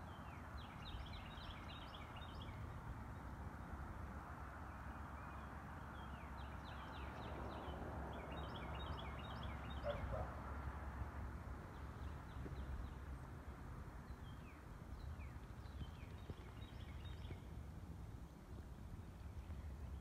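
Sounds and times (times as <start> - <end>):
small birds twittering: 4.8 - 10.4, 14.0 - 17.6.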